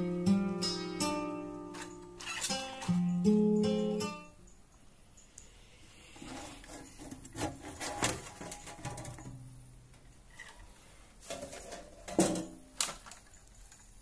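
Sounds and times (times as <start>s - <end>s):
guitar music: 0.0s - 4.4s
metal cover scraping: 6.1s - 9.4s.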